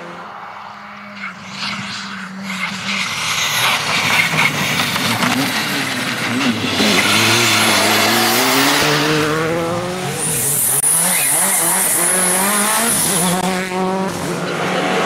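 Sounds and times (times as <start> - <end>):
rally car shifting gears: 0.0 - 15.0
rally car accelerating past: 4.3 - 15.0.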